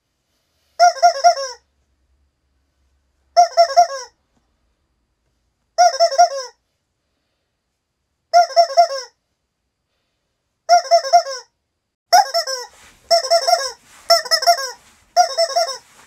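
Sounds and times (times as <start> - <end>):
rubber chicken toy squeaking: 0.8 - 1.7, 3.3 - 4.2, 5.8 - 6.6, 8.3 - 9.2, 10.7 - 16.0.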